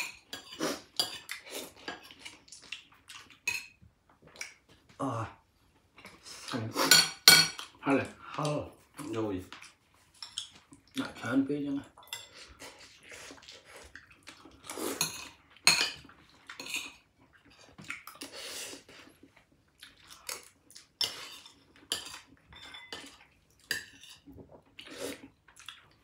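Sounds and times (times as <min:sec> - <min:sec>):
cutlery clinking against dishes: 0:00.0 - 0:02.4, 0:06.8 - 0:07.8, 0:14.9 - 0:17.0, 0:21.0 - 0:24.3.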